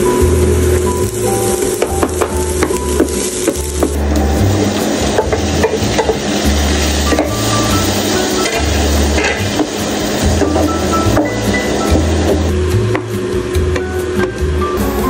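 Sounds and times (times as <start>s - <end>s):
vegetables sizzling in a pan: 0.0s - 13.6s
spatula scraping and tapping pan: 1.0s - 12.4s.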